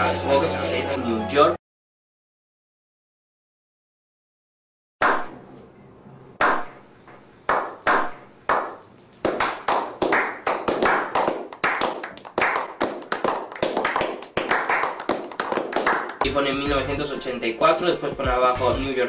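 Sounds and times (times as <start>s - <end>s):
people clapping: 6.4s - 6.7s, 7.5s - 16.4s.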